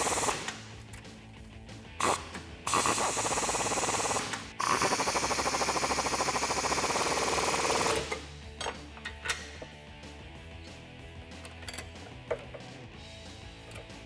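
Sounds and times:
impact wrench hammering: 2.0 - 9.6.

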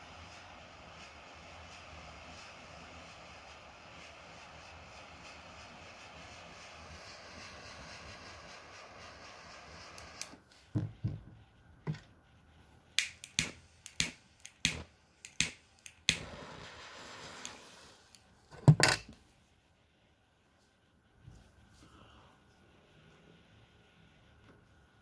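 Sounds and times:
torch lighter flame hissing: 0.0 - 18.7
match being struck: 8.2 - 10.4, 12.9 - 18.3
lighter click: 13.0 - 16.4.

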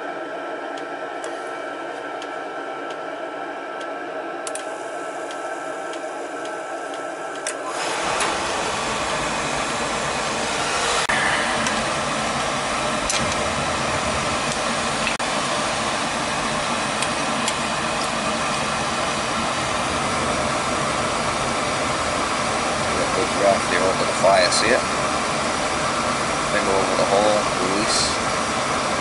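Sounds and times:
burner motor and blower whine: 0.0 - 29.0
oil flame combustion rumble: 7.6 - 29.0.

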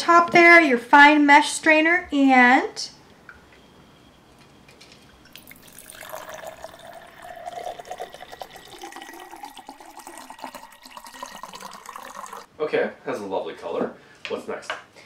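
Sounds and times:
liquid trickling into glass: 5.0 - 12.5.

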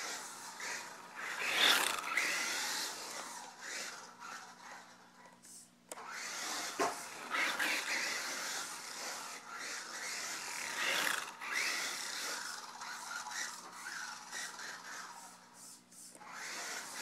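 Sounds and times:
toy truck electric motor whining: 0.0 - 5.2, 5.9 - 17.0.

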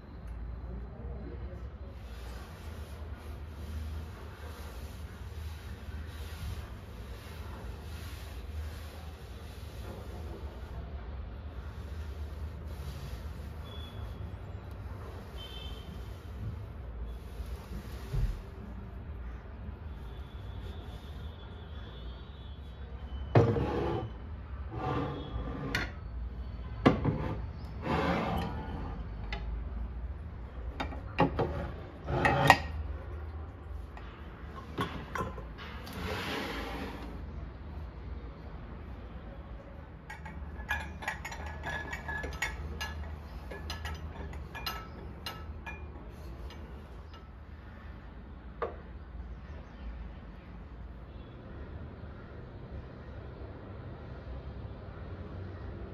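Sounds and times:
glass jars scraping on shelf: 23.2 - 26.1, 26.9 - 29.5, 30.8 - 32.9, 34.5 - 37.3, 40.1 - 47.3
mugs clinking on wooden stand: 40.1 - 46.6.

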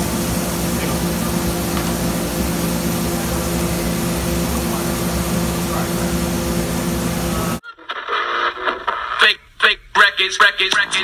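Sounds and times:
ventilation fans droning: 0.0 - 7.6.

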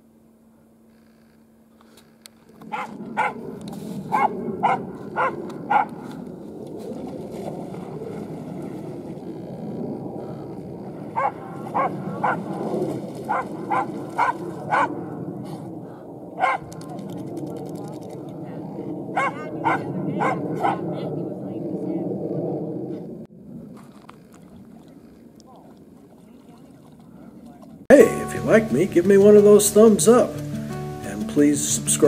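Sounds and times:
steady rushing noise: 2.0 - 23.8
dog barking: 2.7 - 3.4, 4.1 - 6.0, 11.2 - 12.5, 13.3 - 15.0, 16.4 - 16.7, 19.1 - 20.8.

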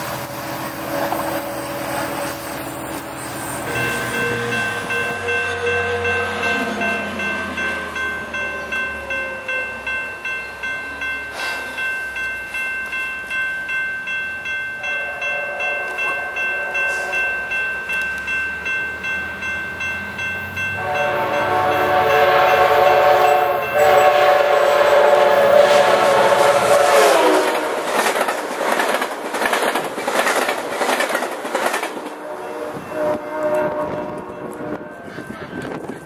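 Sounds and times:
train horn blasts: 0.0 - 9.8, 14.8 - 17.6, 20.7 - 28.1, 32.1 - 35.8
railroad crossing bell ringing: 0.0 - 28.4, 31.4 - 36.0.

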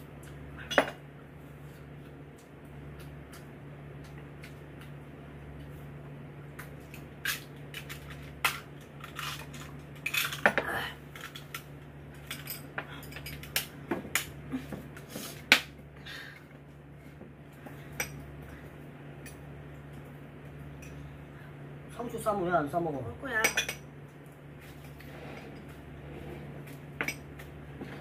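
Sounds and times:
utensils clinking against plates: 12.2 - 13.7, 23.4 - 23.8.

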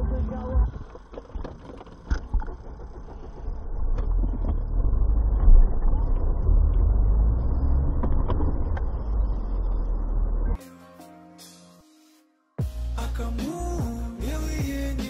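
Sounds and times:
car driving rumble: 0.0 - 10.6.

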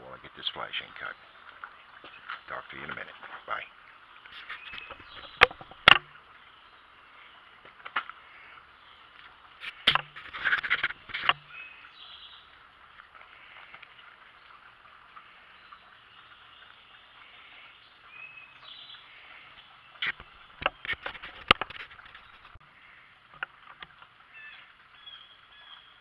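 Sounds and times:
outdoor background: 0.0 - 26.0
sharp clicks and clatter: 20.0 - 22.6.

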